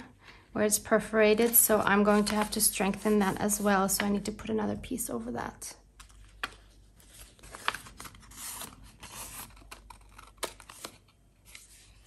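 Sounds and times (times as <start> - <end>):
paper rustling and sliding: 1.4 - 4.1, 6.3 - 12.0.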